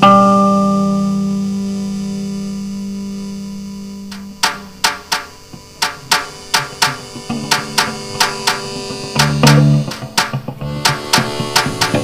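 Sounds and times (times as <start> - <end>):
steady held notes: 0.0 - 12.0
sharp drum beat: 4.1 - 12.0.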